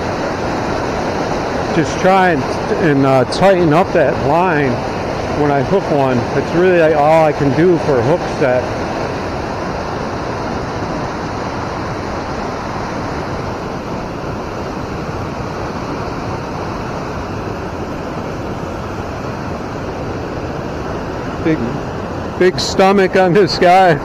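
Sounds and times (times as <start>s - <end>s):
river water rushing: 0.0s - 24.0s.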